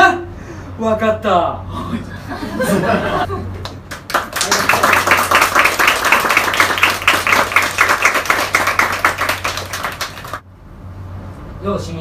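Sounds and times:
audience clapping: 3.6 - 10.4.

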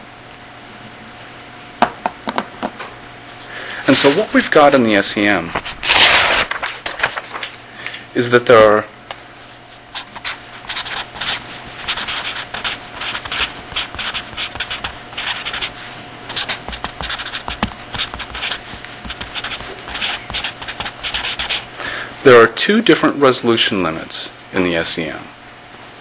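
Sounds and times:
faint steady hum: 0.0 - 26.0
pen scratching on paper: 10.0 - 21.7.

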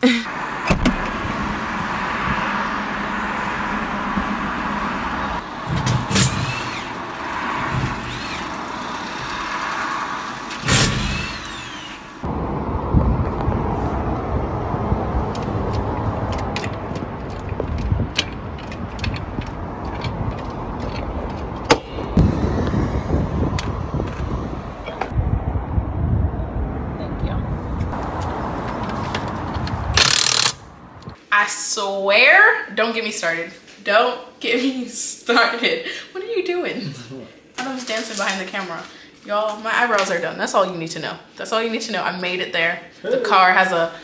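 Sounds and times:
car road noise from inside: 0.3 - 5.8.

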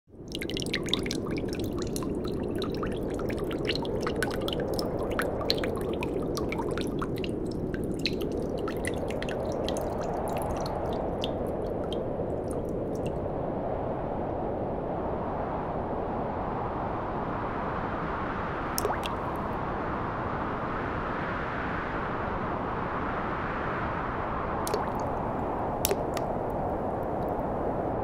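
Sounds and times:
water drips and splashes: 0.2 - 13.2, 18.7 - 19.4, 24.7 - 27.4
water pouring from a glass: 0.2 - 13.2, 18.8 - 19.2, 24.7 - 25.2, 25.8 - 26.3.

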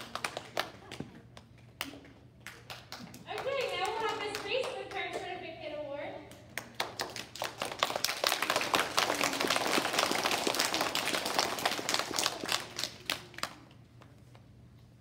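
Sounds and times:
audience applauding: 6.8 - 13.7.

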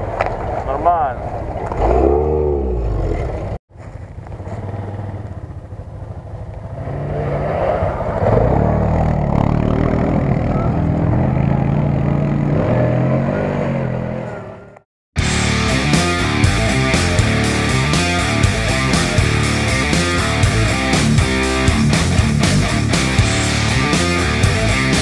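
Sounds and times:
quad bike engine running: 1.8 - 7.2, 8.3 - 14.1.

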